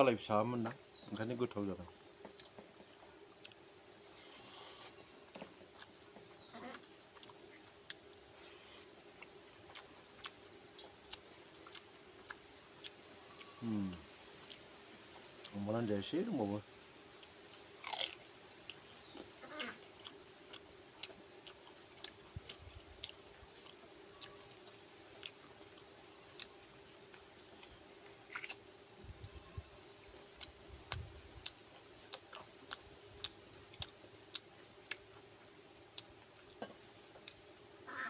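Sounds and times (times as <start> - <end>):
faint steady hum: 0.0 - 38.0
dull chewing thuds: 0.6 - 15.6, 17.1 - 37.7
wet mouth clicks chewing: 2.2 - 3.6, 4.3 - 8.0, 9.2 - 14.6, 17.2 - 28.6, 30.3 - 35.3.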